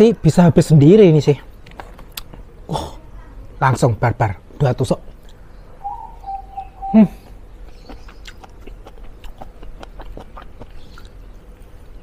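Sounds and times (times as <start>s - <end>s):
wet mouth clicks: 7.7s - 11.2s
person chewing: 7.8s - 12.0s.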